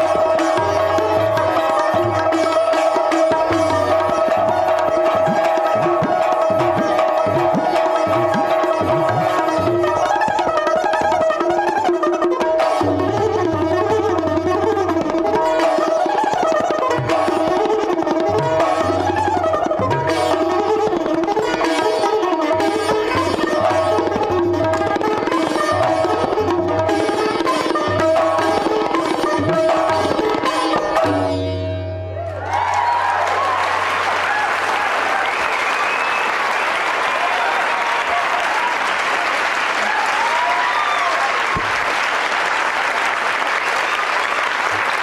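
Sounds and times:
sitar pipa and tabla playing: 0.0s - 41.9s
audience cheering: 32.2s - 45.0s
audience applause: 32.4s - 45.0s.

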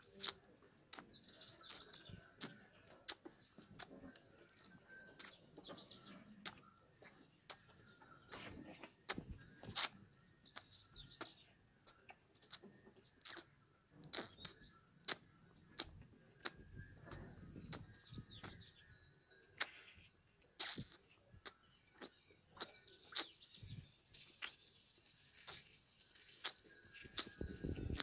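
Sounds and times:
calf sucking and smacking: 0.0s - 4.0s, 8.3s - 12.6s, 13.2s - 18.6s, 19.6s - 28.0s
birds chirping faintly: 0.0s - 28.0s.

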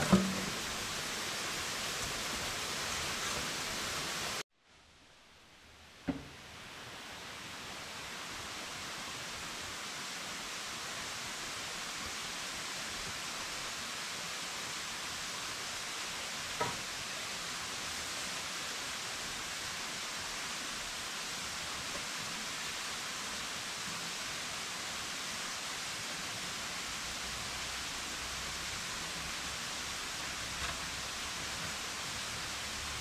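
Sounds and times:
waterfall rushing: 0.0s - 4.4s, 6.9s - 33.0s.

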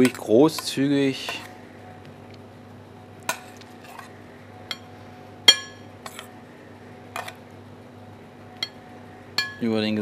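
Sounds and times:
steady low hum: 0.0s - 10.0s
metal spoon clinking on dishes: 4.7s - 4.9s, 5.5s - 6.3s, 8.6s - 8.8s, 9.4s - 9.6s.

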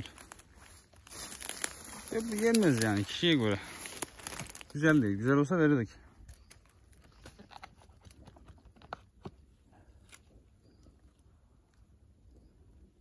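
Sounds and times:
faint snaps and rustles: 0.0s - 5.3s, 6.2s - 9.4s.

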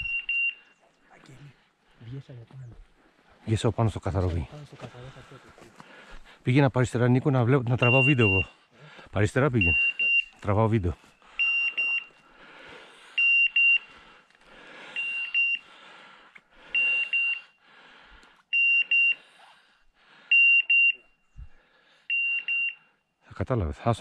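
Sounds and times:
high electronic beeps: 0.0s - 0.8s, 7.8s - 8.5s, 9.6s - 10.4s, 11.4s - 12.1s.

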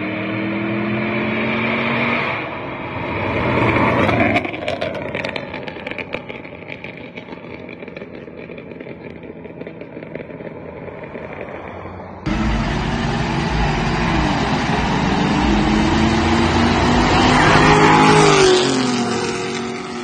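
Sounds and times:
car engine at full throttle passing: 0.0s - 20.0s.

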